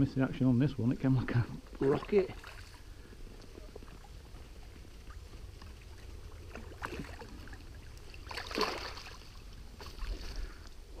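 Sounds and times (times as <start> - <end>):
net splashing through water: 8.2 - 9.4.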